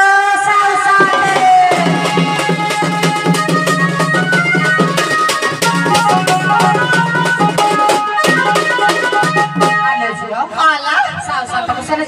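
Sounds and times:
fast hand-drum strokes: 0.8 - 10.2
melody instrument short notes: 1.1 - 10.5.

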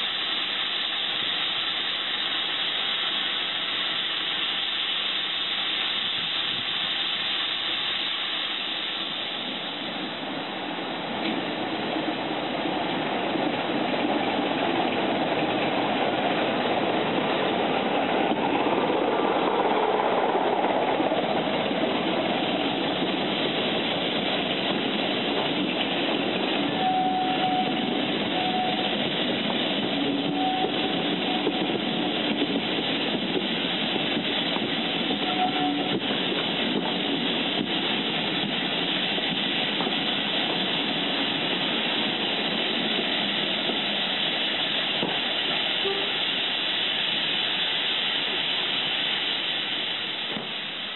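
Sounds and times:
diesel locomotive rumbling past: 6.0 - 50.7
wheel squeals: 26.7 - 29.0, 30.2 - 31.8, 35.1 - 36.0.

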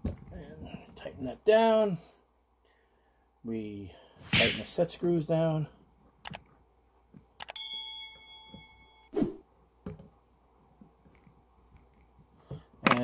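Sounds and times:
light metallic clink: 7.6 - 9.1.

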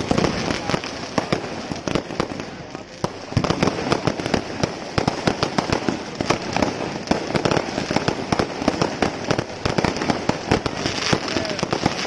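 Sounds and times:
fireworks bangs and crackles: 0.0 - 12.0.

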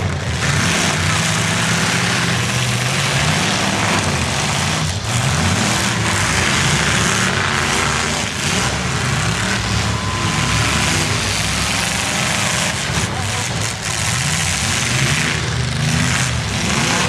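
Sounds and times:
pickup truck engines revving: 0.0 - 17.0.

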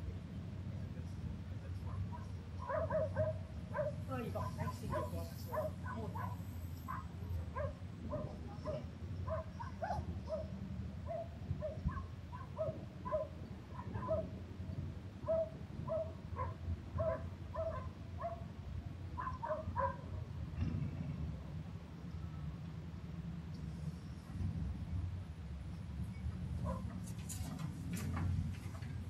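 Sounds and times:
low rumble of wind: 0.0 - 29.0
dog barking: 1.8 - 14.4, 15.2 - 18.5, 19.2 - 20.2, 26.6 - 26.9.

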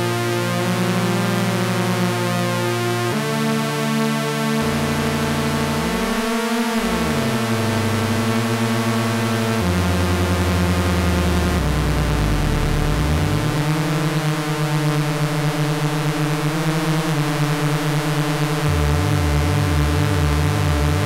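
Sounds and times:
synthesizer sustained tones: 4.5 - 14.5.

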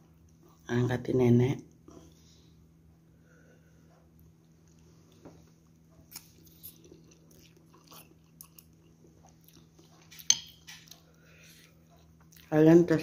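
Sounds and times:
faint steady hum: 0.0 - 13.0
person chewing: 4.0 - 12.5.

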